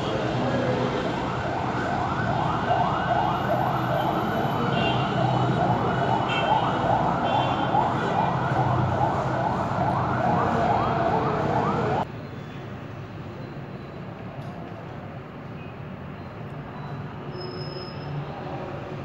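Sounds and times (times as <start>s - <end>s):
road traffic rumble: 0.0s - 19.0s
siren yelping: 0.9s - 12.1s.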